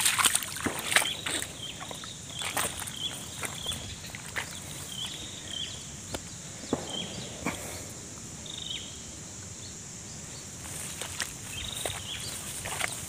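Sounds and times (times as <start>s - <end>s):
footsteps in grass: 0.0s - 5.4s, 10.6s - 13.0s.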